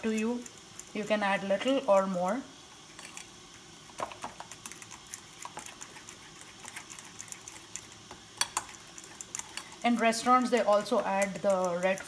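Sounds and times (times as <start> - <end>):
spoon stirring in ceramic bowl: 4.0 - 12.0.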